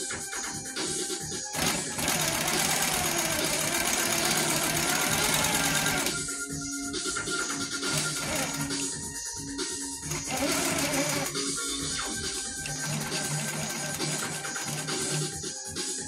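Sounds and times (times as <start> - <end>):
background music: 0.0 - 16.0
quilting machine stitching: 1.5 - 6.2, 7.8 - 8.9, 10.0 - 11.5, 12.6 - 15.3.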